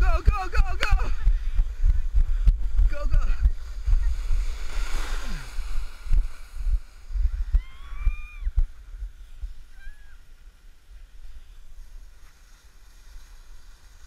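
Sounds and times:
wind and handling rumble: 0.0s - 14.0s
distant high-pitched shout: 7.5s - 8.6s.

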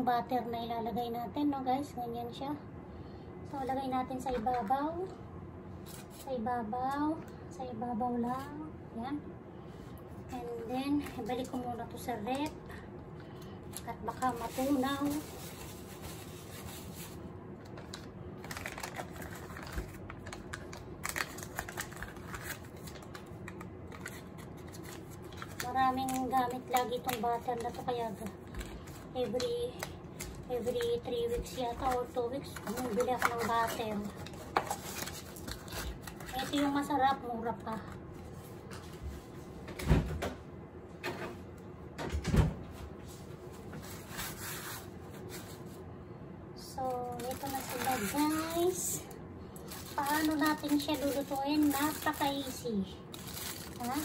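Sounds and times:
foil wrapper crinkling: 13.7s - 37.8s, 46.8s - 48.9s, 49.6s - 54.0s.

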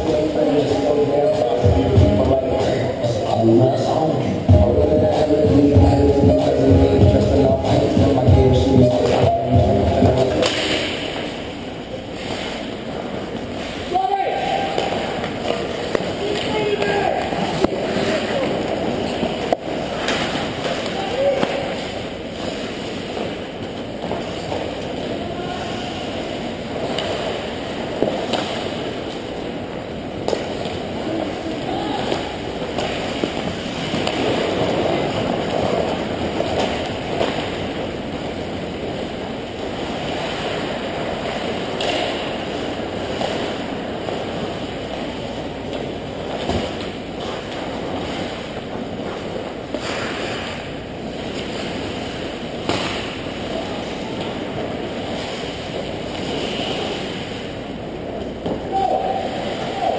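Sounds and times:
ice rink noisy wash: 0.0s - 59.9s
sticks and pucks clacking on ice: 10.2s - 11.4s, 12.1s - 29.5s, 30.2s - 43.7s.

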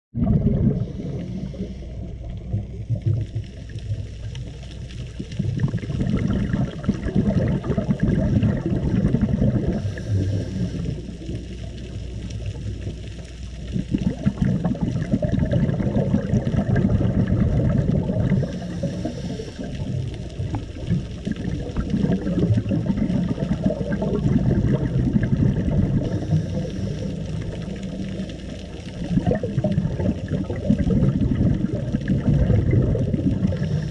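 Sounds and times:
muffled underwater water rush: 0.1s - 33.9s
faint hiss: 0.8s - 5.4s, 9.6s - 13.8s, 18.1s - 24.0s, 25.9s - 30.4s.

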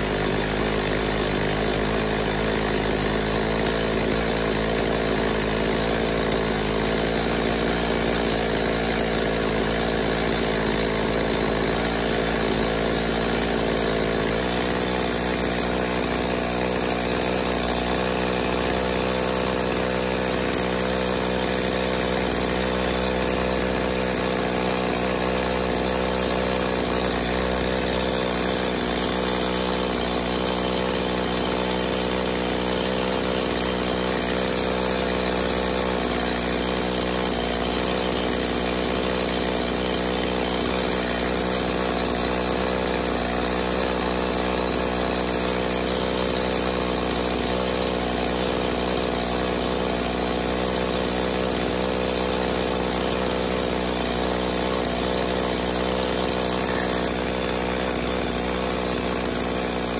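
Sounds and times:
chainsaw engine idling: 0.0s - 59.9s.

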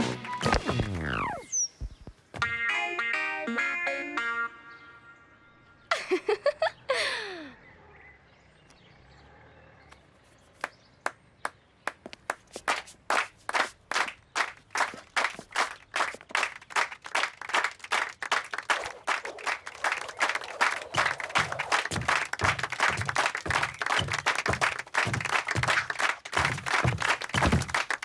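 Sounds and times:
audience clapping: 11.1s - 28.0s.

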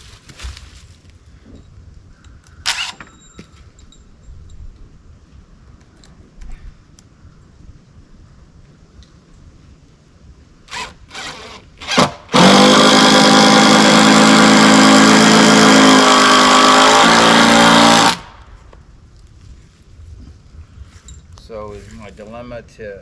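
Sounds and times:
power drill driving a screw: 10.7s - 18.2s.

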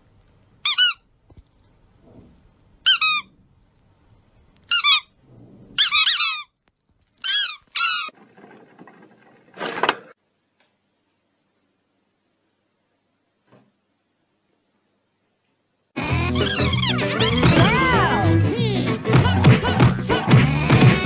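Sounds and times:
squeaky toy squeaks: 0.6s - 1.0s, 2.8s - 3.3s, 4.7s - 5.1s, 5.8s - 6.6s, 7.2s - 8.1s, 16.0s - 18.2s.

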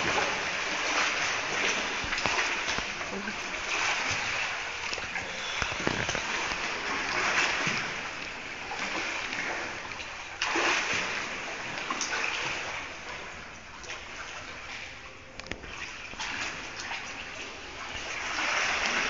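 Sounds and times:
loud splash: 0.0s - 12.8s
pool water splashing and sloshing: 0.0s - 19.0s.

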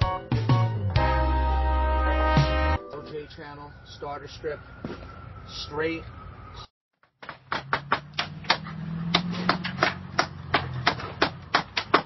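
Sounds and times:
nails driven into siding: 7.2s - 12.0s.

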